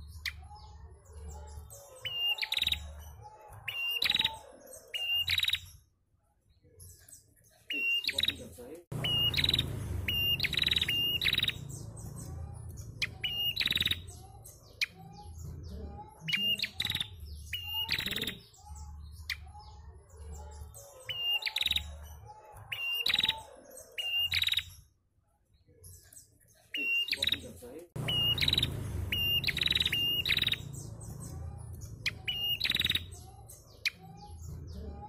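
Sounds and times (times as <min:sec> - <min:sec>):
bird sharp chirps and trill: 0:00.0 - 0:05.9, 0:06.8 - 0:25.0, 0:25.9 - 0:35.0
softer lower bird chirps: 0:00.0 - 0:05.9, 0:09.0 - 0:15.4, 0:22.7 - 0:24.9, 0:25.9 - 0:34.5
low rumble: 0:08.9 - 0:13.3, 0:28.0 - 0:33.2.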